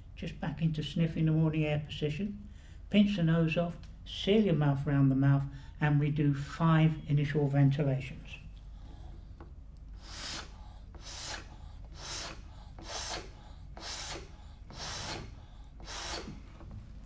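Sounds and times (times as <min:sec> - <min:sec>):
breathy puffs of air: 0:10.0 - 0:16.5.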